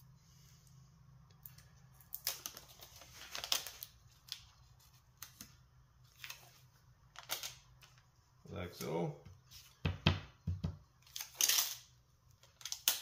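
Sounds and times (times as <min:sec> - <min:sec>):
packing tape pulled off roll: 0:11.0 - 0:13.0.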